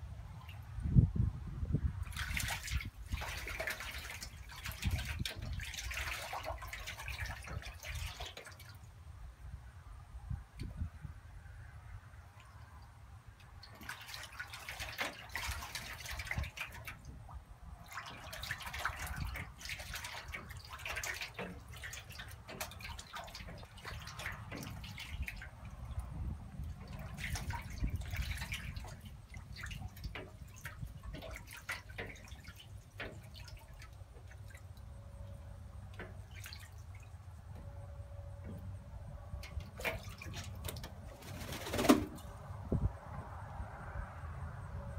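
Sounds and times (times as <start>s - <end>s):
duck splashing in water: 2.0s - 8.9s, 13.4s - 35.1s, 35.7s - 37.2s, 39.4s - 42.4s
water dripping: 2.0s - 8.9s, 12.3s - 37.8s, 39.3s - 41.8s.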